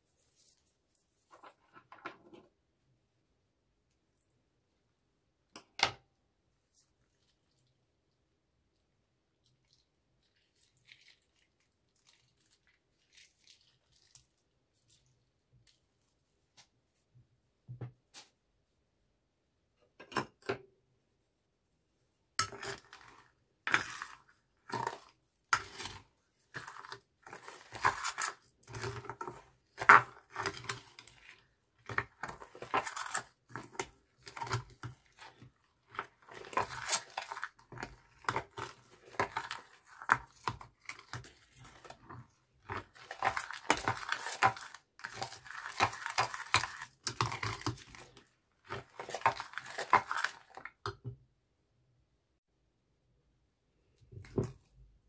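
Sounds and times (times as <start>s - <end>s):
spoon stirring squelching slime: 6.4s - 17.2s, 22.2s - 51.2s.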